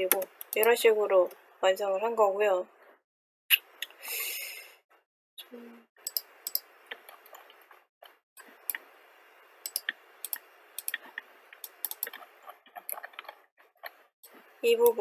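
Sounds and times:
computer mouse clicking: 0.0s - 1.4s, 6.0s - 8.9s, 9.6s - 15.0s.

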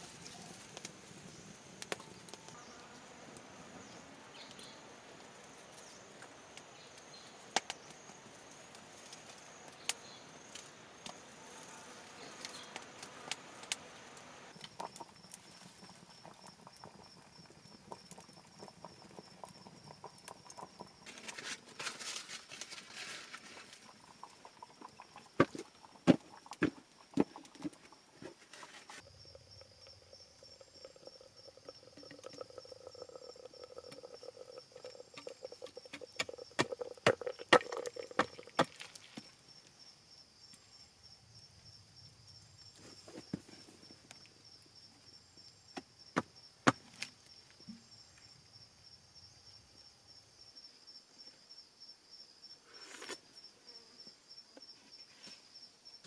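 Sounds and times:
wood fire crackling: 0.0s - 2.5s, 12.4s - 39.4s
high insect whine: 0.0s - 56.0s.

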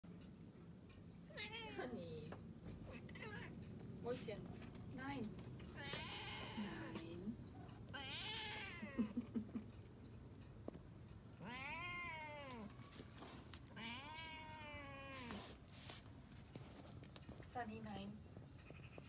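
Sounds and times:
cat meowing: 2.9s - 3.6s, 5.7s - 7.0s, 7.9s - 9.0s, 11.4s - 13.0s, 13.7s - 15.5s.

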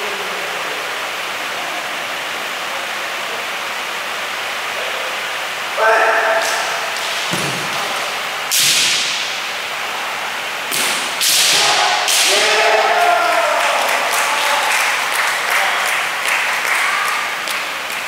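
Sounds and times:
drawn-out shouts: 5.8s - 6.8s, 11.6s - 17.4s.

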